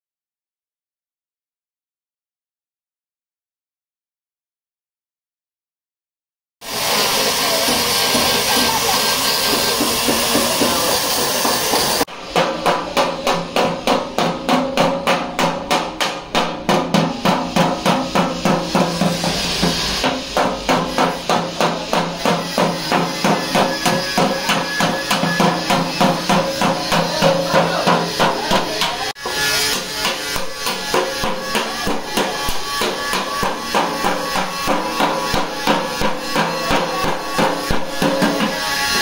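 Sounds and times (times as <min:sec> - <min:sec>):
hammer beating metal panel: 0:09.4 - 0:38.7.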